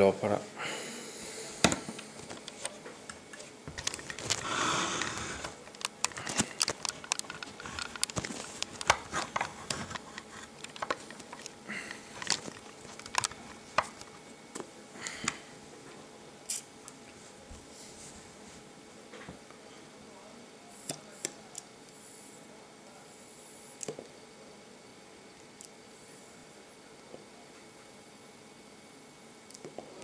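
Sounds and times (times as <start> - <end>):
hot coil crackling and popping: 3.6 - 14.3.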